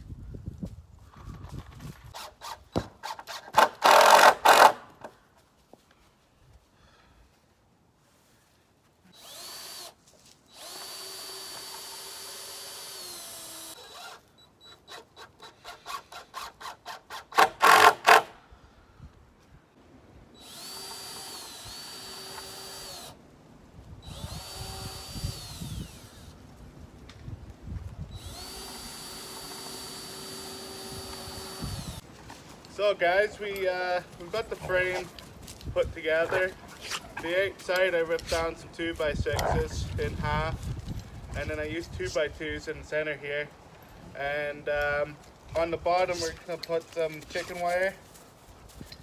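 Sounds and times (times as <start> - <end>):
cordless drill motor whine: 9.2 - 14.2, 20.4 - 23.2, 24.0 - 26.4, 28.1 - 32.0.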